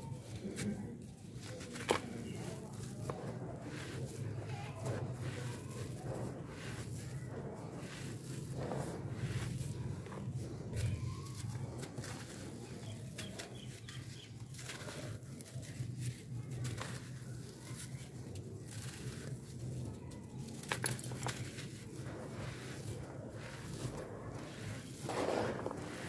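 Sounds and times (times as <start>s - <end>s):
charcoal crunching between hands: 0.3s - 26.0s
falling powder trickling: 20.7s - 26.0s.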